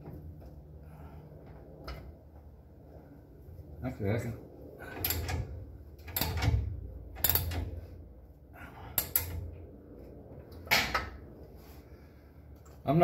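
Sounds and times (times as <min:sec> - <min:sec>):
ratchet wrench metallic clicks: 0:07.2 - 0:07.6.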